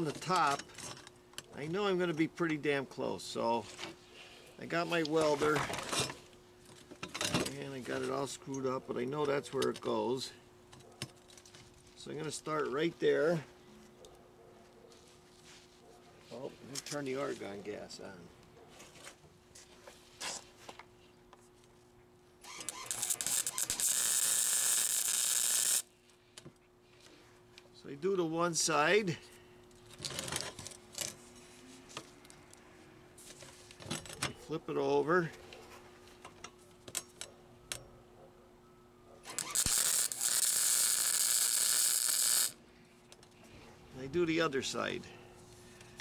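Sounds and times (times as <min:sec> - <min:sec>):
welder arc crackling: 0:22.5 - 0:25.9, 0:39.3 - 0:42.6.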